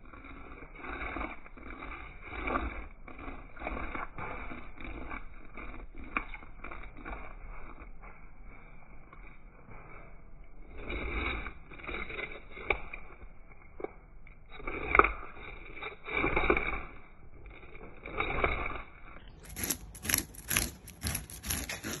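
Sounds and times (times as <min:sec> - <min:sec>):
knife scraping fish scales: 0:17.7 - 0:22.0.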